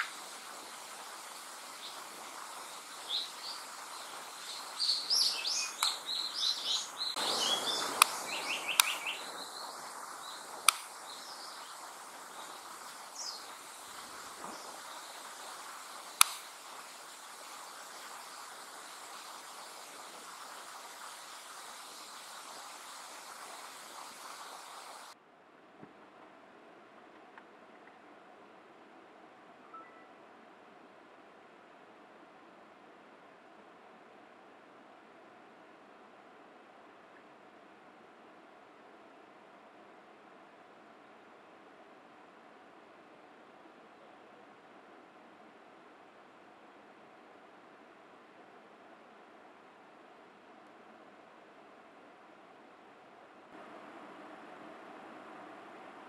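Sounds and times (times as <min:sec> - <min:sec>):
forest hiss: 0:00.0 - 0:25.2, 0:39.3 - 0:56.0
bird singing whistled notes: 0:02.6 - 0:10.5, 0:29.6 - 0:30.1
sharp clicks: 0:10.6 - 0:10.9, 0:16.1 - 0:16.5.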